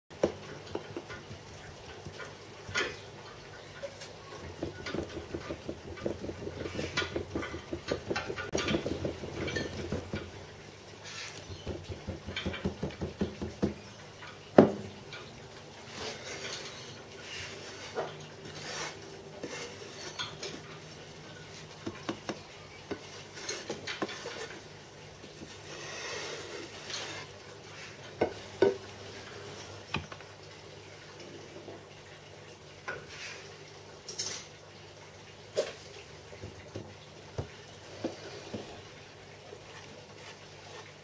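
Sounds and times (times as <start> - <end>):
wooden bar scraping sand: 15.9 - 20.2.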